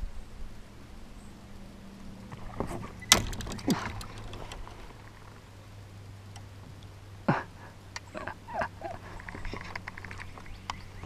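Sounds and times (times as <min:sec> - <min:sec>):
gear clicks and knocks: 0:02.6 - 0:05.4.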